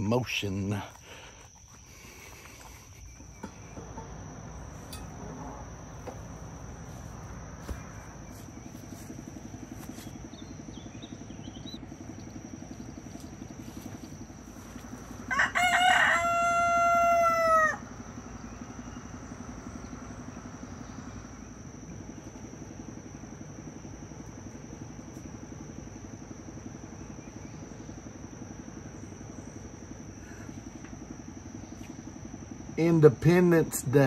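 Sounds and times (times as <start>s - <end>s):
high insect trill: 0.0s - 34.0s
rooster crowing: 15.0s - 19.3s.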